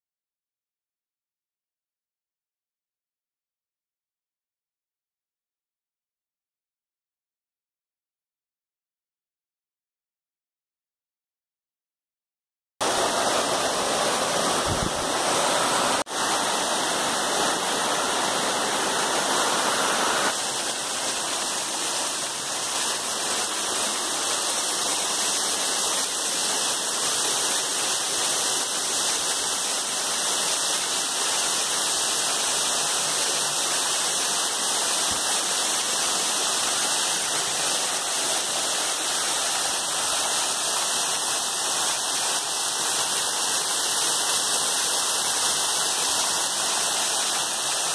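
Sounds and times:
waterfall rushing and splashing: 12.8s - 47.9s.

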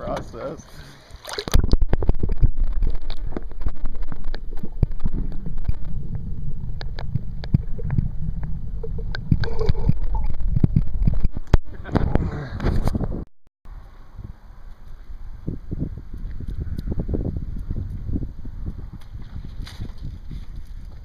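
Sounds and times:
underwater rumbling and gurgling: 1.3s - 13.2s.

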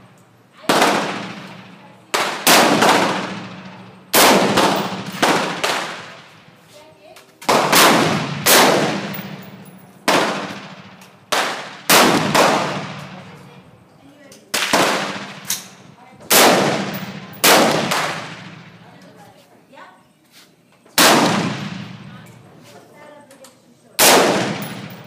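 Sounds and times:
rifle gunshots: 0.7s - 6.4s, 7.5s - 13.3s, 14.5s - 18.8s, 21.0s - 22.2s, 24.0s - 25.0s.

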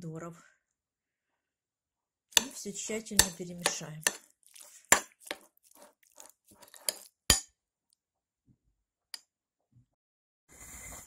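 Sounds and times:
spoon stirring wet food: 2.3s - 7.5s
spoon clinking against bowl: 3.2s - 4.2s.

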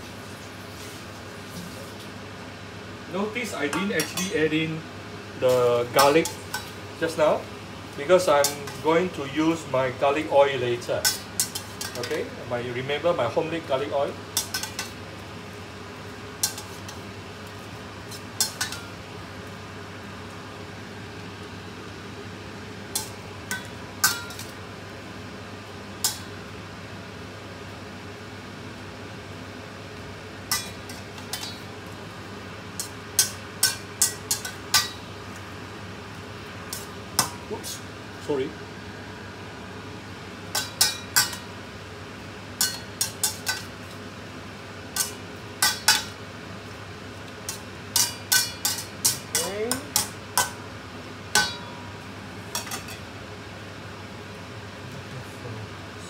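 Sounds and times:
steady low hum: 1.2s - 56.0s
metal utensils clanking in a wok: 3.7s - 4.4s, 5.5s - 6.8s, 8.4s - 8.8s, 11.0s - 12.2s, 14.4s - 15.0s, 16.4s - 17.0s, 18.1s - 18.9s, 23.0s - 24.5s, 30.5s - 31.7s, 32.8s - 35.0s, 40.5s - 41.5s, 42.6s - 43.7s, 45.0s - 46.2s, 47.5s - 50.6s, 51.4s - 51.8s, 52.5s - 53.0s
metal spatula clinking on wok: 42.6s - 43.7s, 47.5s - 50.6s.

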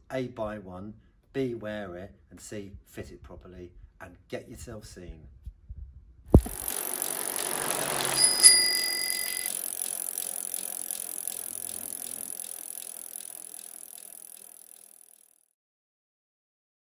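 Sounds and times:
bicycle freewheel ticking: 6.4s - 15.4s
bicycle bell ring: 6.6s - 10.5s.

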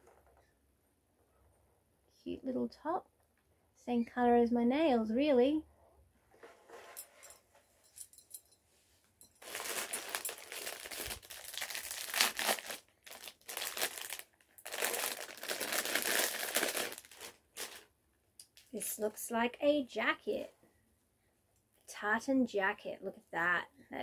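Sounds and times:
foil packet crinkling and tearing: 9.4s - 17.9s.

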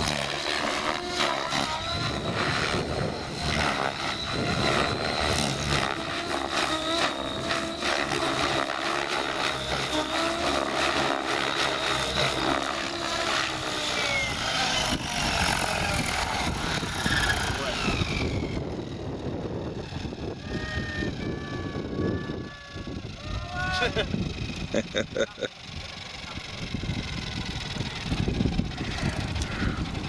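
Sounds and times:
thin high whine: 0.0s - 18.8s
model helicopter flying: 0.0s - 30.0s.

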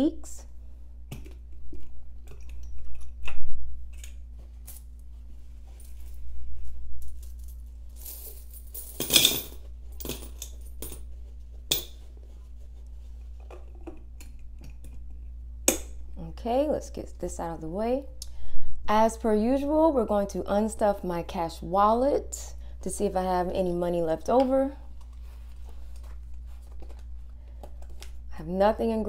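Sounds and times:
coins clinking into glass jar: 7.2s - 11.0s.

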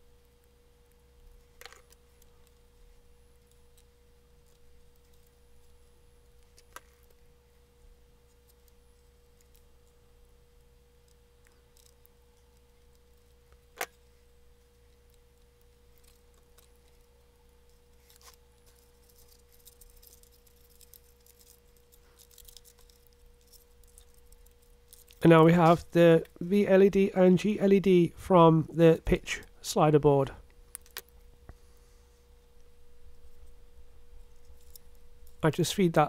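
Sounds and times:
faint steady hum: 0.0s - 36.0s
handling thin wires: 10.6s - 26.4s, 30.5s - 36.0s.

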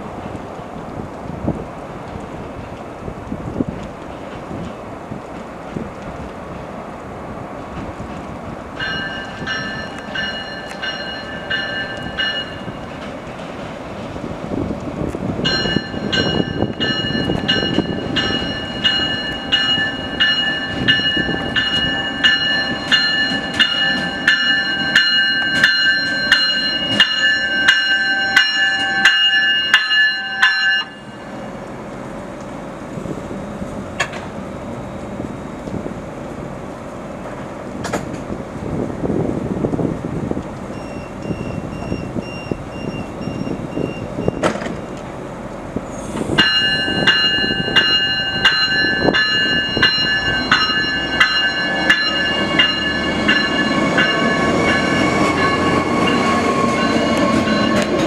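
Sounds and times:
train running rumble: 0.0s - 58.0s
train warning bell ringing: 8.8s - 13.0s, 15.4s - 31.6s, 40.7s - 45.0s, 46.4s - 58.0s
short electronic beeps: 40.8s - 44.5s.

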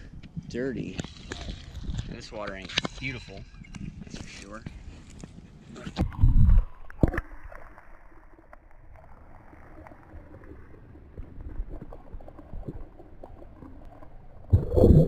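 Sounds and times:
muffled underwater water rumble: 6.0s - 15.0s.

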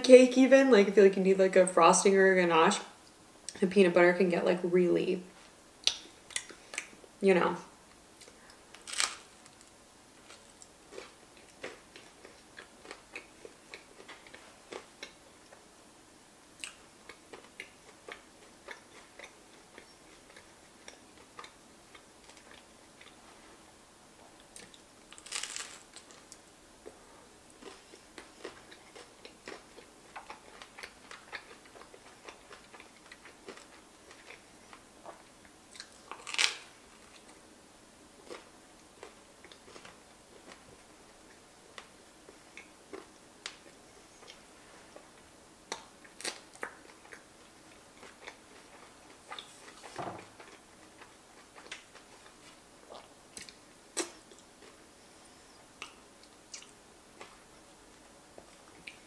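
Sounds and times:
chewing and mouth smacks: 55.8s - 57.4s.

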